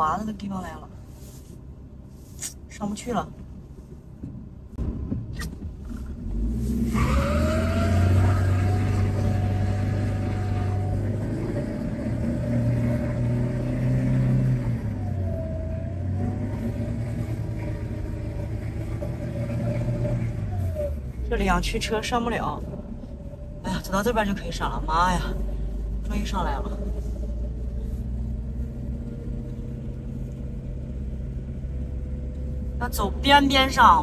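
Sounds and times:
car engine revving hard: 0:06.2 - 0:21.0.

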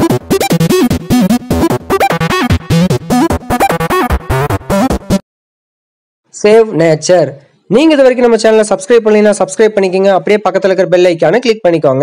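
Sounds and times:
electronic music with synthesizer: 0:00.0 - 0:05.2.

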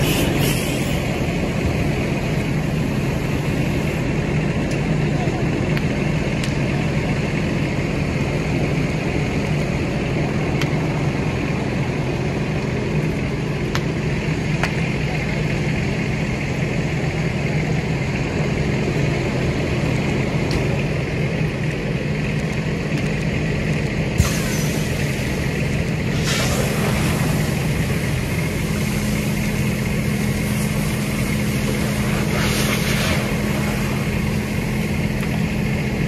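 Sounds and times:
loud hiss: 0:00.0 - 0:04.0, 0:24.2 - 0:35.1
sharp pops from burning truck: 0:00.0 - 0:05.0, 0:05.6 - 0:06.9, 0:08.6 - 0:11.1, 0:13.6 - 0:15.0, 0:20.3 - 0:36.0
fire engine motor droning: 0:00.0 - 0:36.0.

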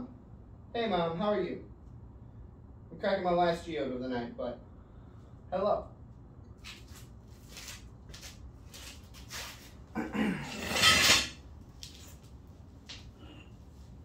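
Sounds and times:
harsh scraping grinding: 0:10.4 - 0:11.4.

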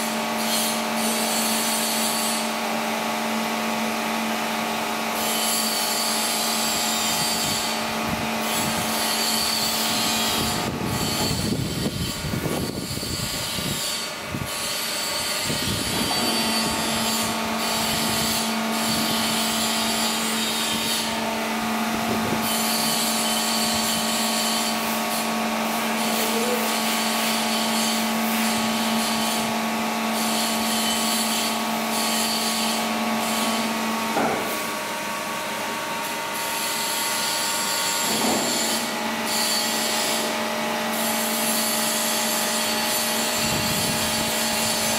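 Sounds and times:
machine hum with pitched tone: 0:00.0 - 0:44.9
rough grinding noise: 0:05.1 - 0:26.6, 0:36.6 - 0:44.9.

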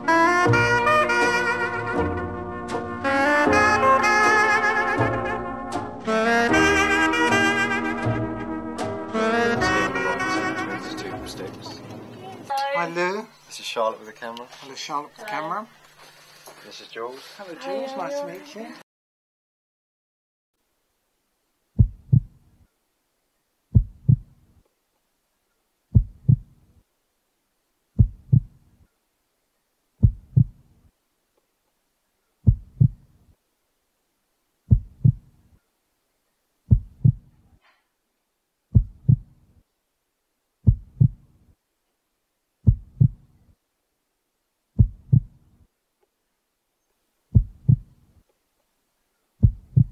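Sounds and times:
heartbeat double thumps: 0:21.8 - 0:22.4, 0:23.7 - 0:24.4, 0:25.9 - 0:26.6, 0:28.0 - 0:28.6, 0:30.0 - 0:30.6, 0:32.4 - 0:33.1, 0:34.7 - 0:35.4, 0:36.7 - 0:37.3, 0:38.7 - 0:39.4, 0:40.6 - 0:41.4, 0:42.6 - 0:43.3, 0:44.8 - 0:45.5, 0:47.3 - 0:48.0, 0:49.4 - 0:49.9.

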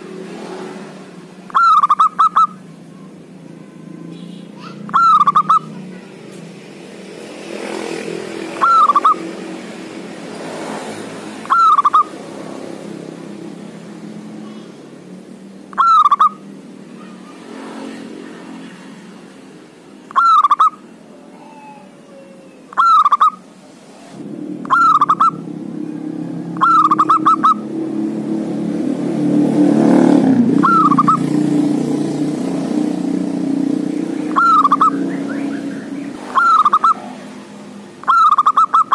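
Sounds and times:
dove cooing: 0:01.5 - 0:02.6, 0:04.7 - 0:05.8, 0:08.4 - 0:09.3, 0:11.4 - 0:12.2, 0:15.7 - 0:16.4, 0:20.1 - 0:23.4, 0:24.6 - 0:25.4, 0:26.4 - 0:27.7, 0:30.5 - 0:31.5, 0:34.2 - 0:37.4, 0:38.0 - 0:38.9.

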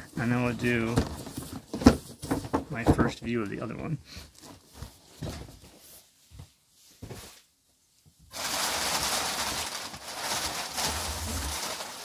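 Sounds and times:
tissue paper crinkling: 0:08.3 - 0:12.0.

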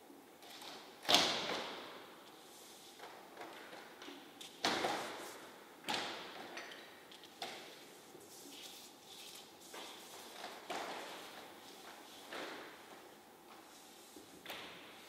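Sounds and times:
paint brush swishing on paper: 0:07.9 - 0:10.4.

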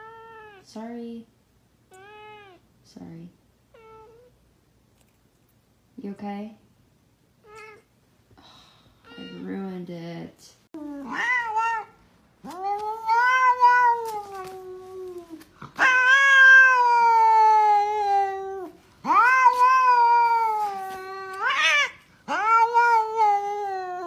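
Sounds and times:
cat meowing: 0:00.0 - 0:00.6, 0:01.9 - 0:02.6, 0:03.7 - 0:04.3, 0:07.4 - 0:07.9, 0:10.9 - 0:24.0.

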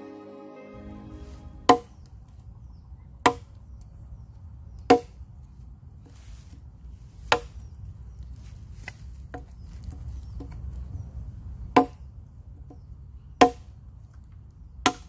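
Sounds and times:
machete chopping into log: 0:04.9 - 0:05.2, 0:07.3 - 0:07.5.

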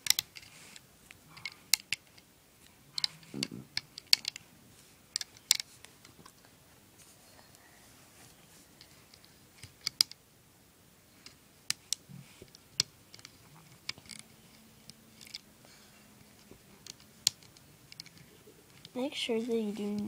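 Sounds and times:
rubber bands snapping on plastic pegs: 0:00.0 - 0:00.4, 0:02.9 - 0:04.4, 0:11.6 - 0:15.4.

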